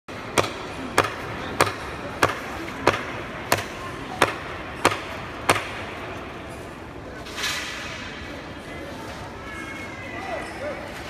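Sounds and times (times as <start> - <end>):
sharp knocks of striking: 0.1 - 6.1.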